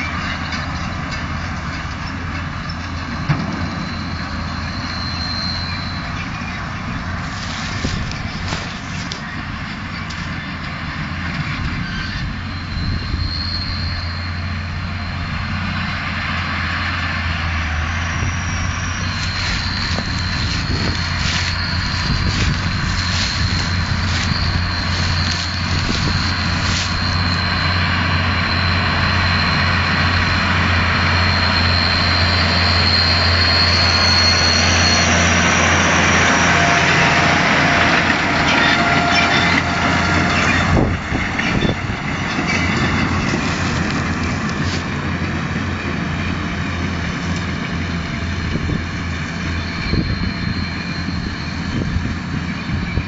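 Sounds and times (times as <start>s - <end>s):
tractor engine running: 0.0s - 53.0s
thin high whine: 3.2s - 9.3s, 18.0s - 45.0s, 45.6s - 53.0s.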